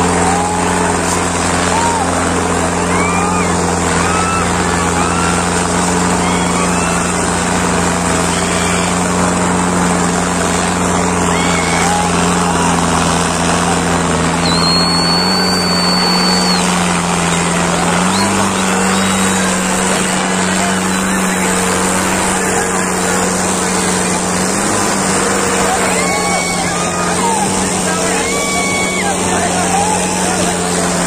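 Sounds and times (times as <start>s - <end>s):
crowd shouting: 0.0s - 31.0s
tractor diesel engine under load: 0.0s - 31.0s
long high whistle: 14.4s - 19.6s.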